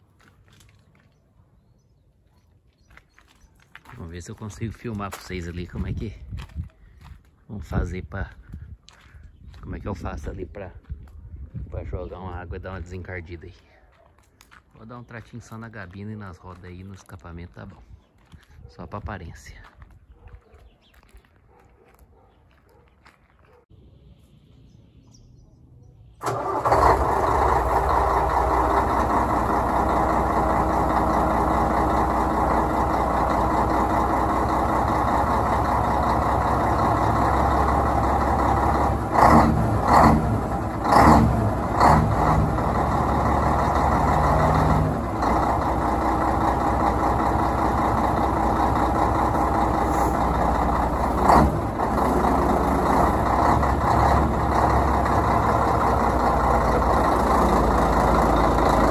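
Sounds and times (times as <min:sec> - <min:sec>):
diesel engine starting and idling: 0:26.0 - 0:58.9.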